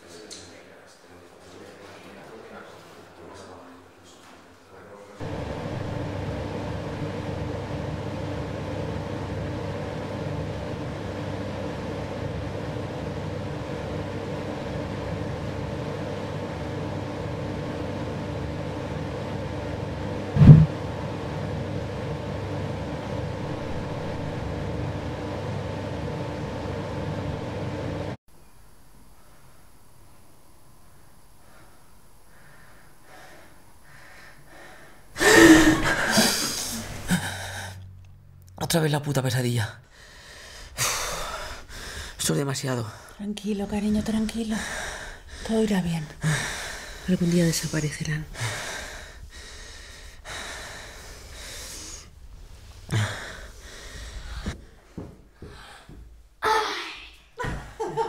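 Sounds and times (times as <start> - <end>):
heavy ragged breaths: 31.4 - 37.8, 39.8 - 42.2, 44.3 - 56.2
man breathing in sleep: 39.9 - 42.2, 44.7 - 45.5, 46.2 - 47.1, 48.4 - 56.2.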